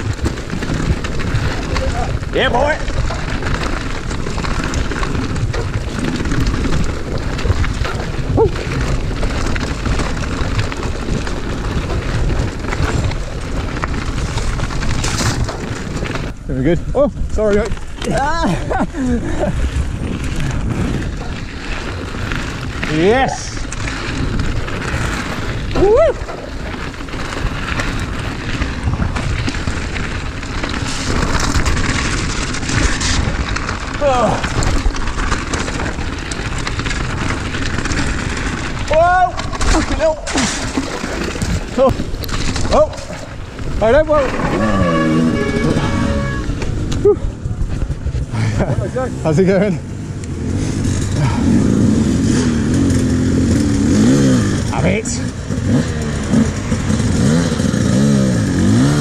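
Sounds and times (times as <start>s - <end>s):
wind rushing over microphone: 0.0s - 40.3s
bike ticks and rattles: 0.0s - 59.0s
tyre noise on dirt trail: 0.0s - 59.0s.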